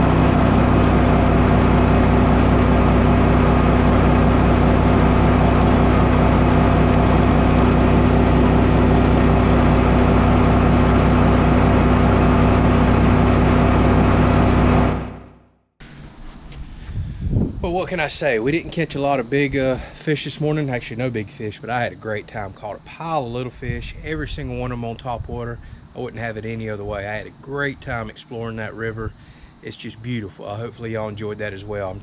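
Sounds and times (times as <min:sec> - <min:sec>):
water rushing along hull: 0:00.0 - 0:15.0
outboard motor running: 0:00.0 - 0:15.4.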